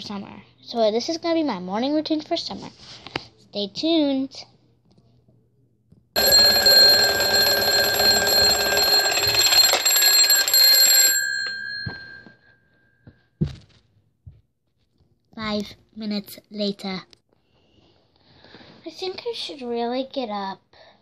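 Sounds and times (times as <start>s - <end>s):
alarm clock bell ringing: 6.2s - 12.4s.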